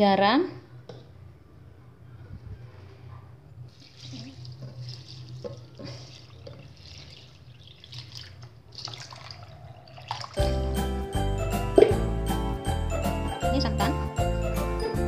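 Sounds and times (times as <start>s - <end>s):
liquid pouring onto rice: 3.7s - 10.4s.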